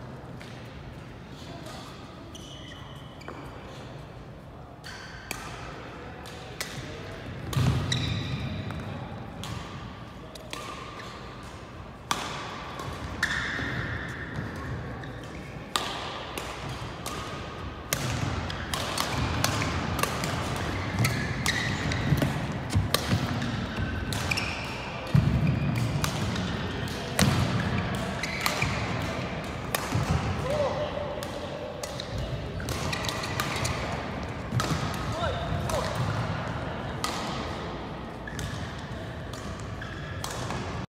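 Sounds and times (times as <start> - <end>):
shoes squeaking on court: 1.5 - 4.0, 7.6 - 8.9, 20.2 - 26.6, 27.5 - 29.3
racket hitting shuttlecock: 4.8 - 40.8.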